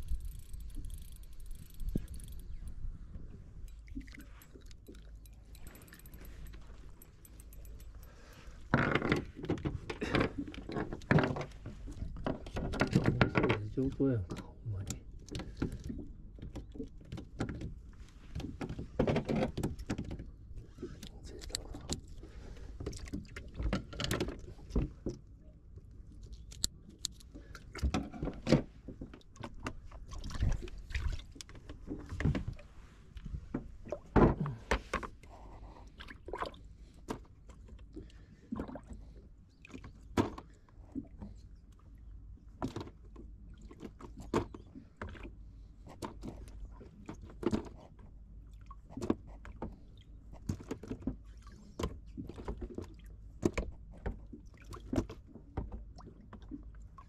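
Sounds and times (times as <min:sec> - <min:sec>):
low steady rumble: 0:00.0 - 0:12.5.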